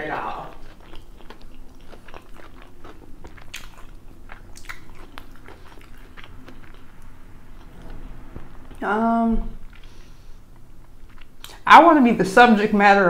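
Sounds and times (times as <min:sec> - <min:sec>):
close chewing with crunches: 0:00.1 - 0:08.0, 0:09.6 - 0:11.6.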